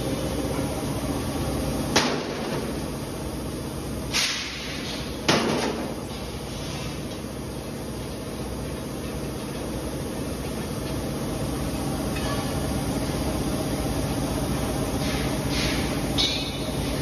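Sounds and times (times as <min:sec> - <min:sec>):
factory machinery hum: 0:00.0 - 0:17.0
gas cylinders clanking: 0:14.9 - 0:17.0.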